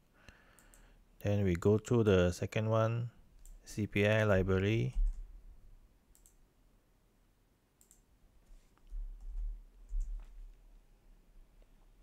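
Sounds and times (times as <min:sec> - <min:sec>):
mouse and keyboard clicks: 0:06.1 - 0:06.4, 0:07.8 - 0:08.0.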